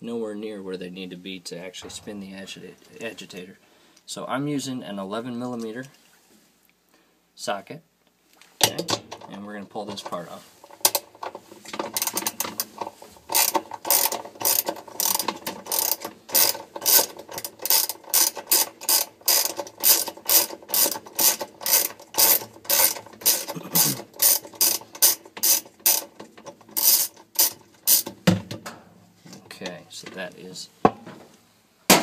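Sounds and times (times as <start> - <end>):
ratchet wrench clicking: 13.3 - 28.1.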